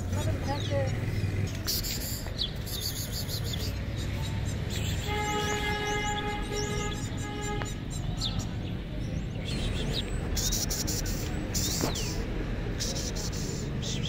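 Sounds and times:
low street rumble: 0:00.0 - 0:14.0
horn-like tone: 0:05.0 - 0:07.8.

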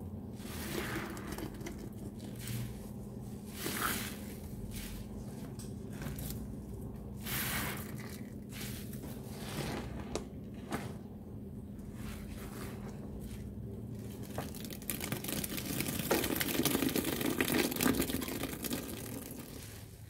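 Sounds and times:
wet foam squelching: 0:00.4 - 0:06.6, 0:07.2 - 0:09.9.

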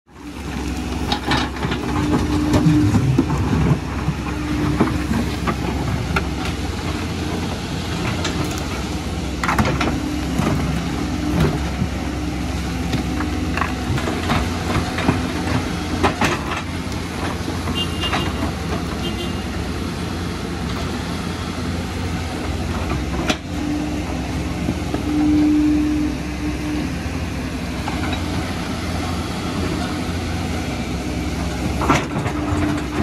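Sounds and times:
excavator diesel engines running: 0:00.1 - 0:33.0
buckets scraping rock and dirt: 0:00.3 - 0:19.0.

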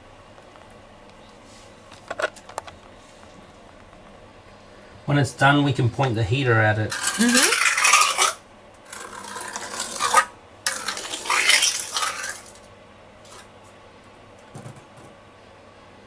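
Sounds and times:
trowel scraping wet compound: 0:06.9 - 0:12.6.

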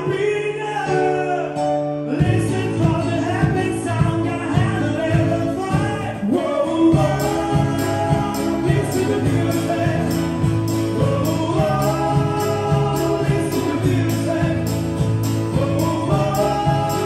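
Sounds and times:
men singing: 0:00.0 - 0:17.0
pop-folk band playing: 0:00.0 - 0:17.0
jingling percussion beat: 0:06.9 - 0:17.0.

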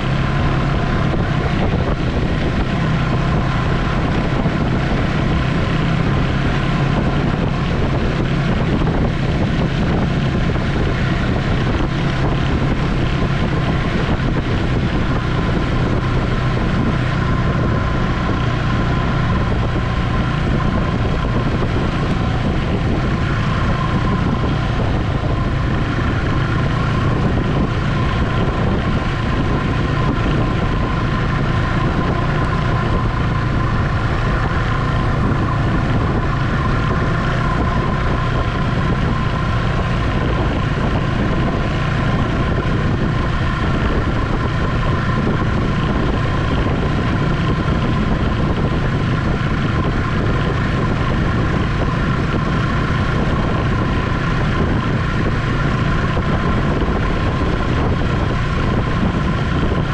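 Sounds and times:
snowmobile engine whine and rumble: 0:00.0 - 0:59.9.

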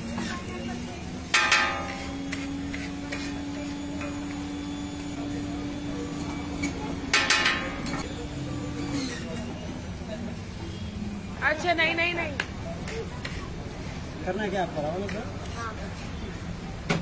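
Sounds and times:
ringing metallic clangs: 0:01.3 - 0:02.1
metal spatula scraping griddle: 0:01.3 - 0:04.6.

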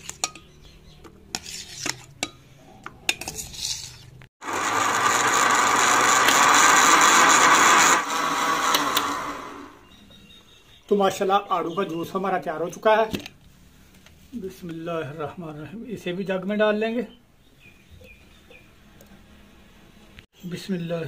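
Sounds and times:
electric blender running: 0:04.4 - 0:09.8.

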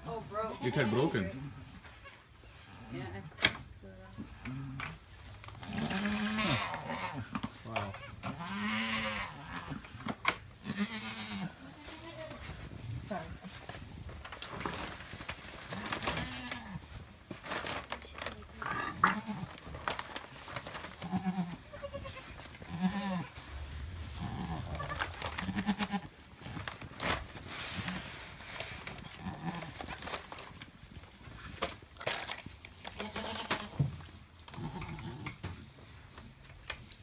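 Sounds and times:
goat bleating: 0:05.7 - 0:09.9, 0:10.6 - 0:12.4, 0:21.0 - 0:23.4, 0:24.2 - 0:26.1, 0:32.9 - 0:33.9
rustling in bedding: 0:11.7 - 0:31.7.

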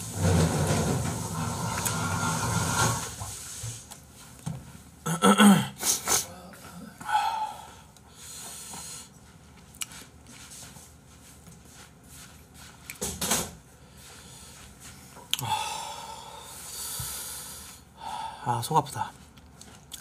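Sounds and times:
man breathing heavily: 0:05.8 - 0:09.2, 0:13.8 - 0:18.5.

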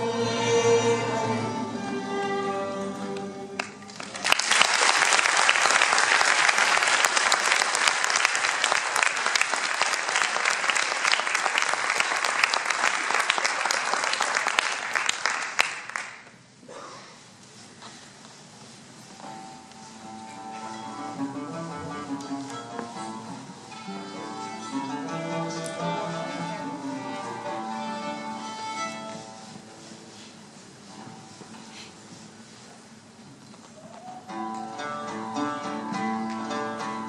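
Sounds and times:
audience applause: 0:03.6 - 0:16.3
oud: 0:34.3 - 0:37.0.

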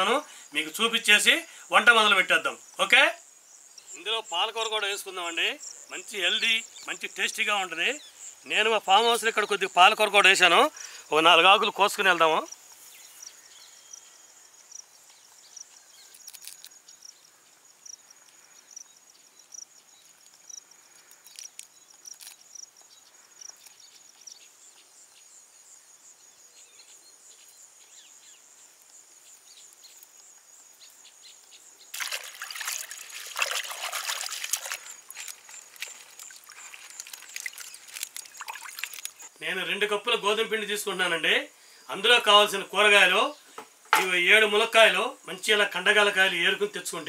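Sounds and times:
insects chirring: 0:00.0 - 0:47.0
water splashing in a bucket: 0:31.9 - 0:39.3.

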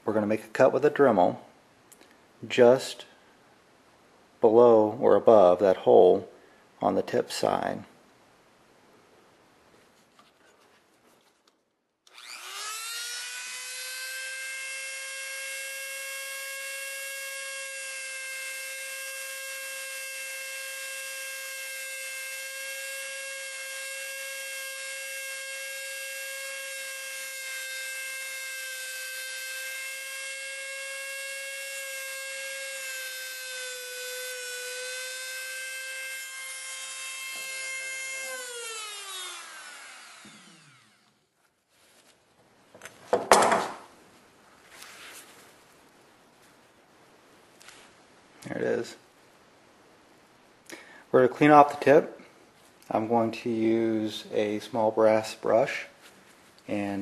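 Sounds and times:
rotary tool high whine: 0:12.1 - 0:41.4.

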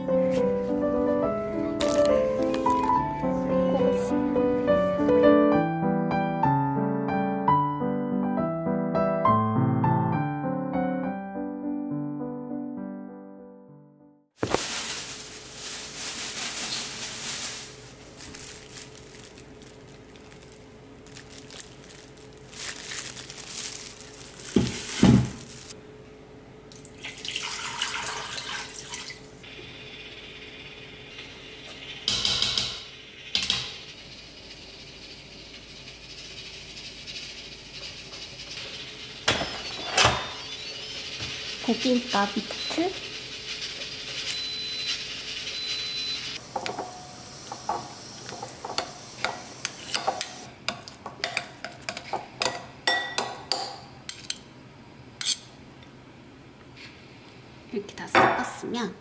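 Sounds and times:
kitchenware knocks and clunks: 0:24.6 - 0:25.4, 0:58.2 - 0:58.6
water pouring into metal pot: 0:26.9 - 0:29.2.

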